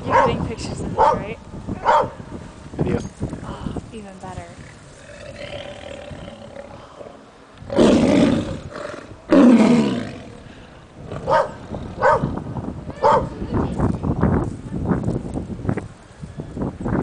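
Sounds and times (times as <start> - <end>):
tigers snarling and roaring: 4.5 - 12.4.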